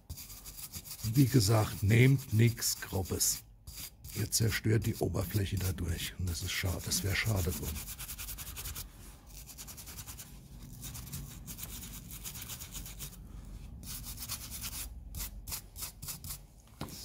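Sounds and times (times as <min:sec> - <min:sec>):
hand brush scrubbing metal: 0:00.1 - 0:13.2.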